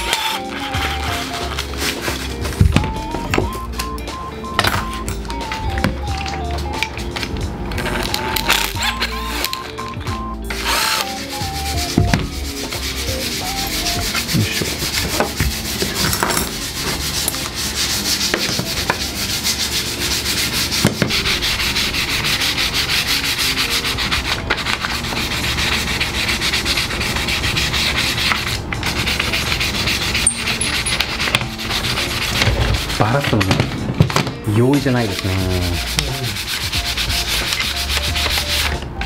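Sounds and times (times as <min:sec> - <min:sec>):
sandpaper rubbing wood: 0:00.0 - 0:03.2, 0:10.5 - 0:33.7, 0:34.5 - 0:38.8.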